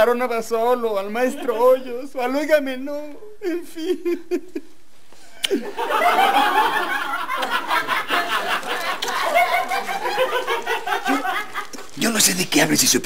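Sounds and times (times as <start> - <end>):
people laughing: 3.4 - 4.8, 5.4 - 12.0.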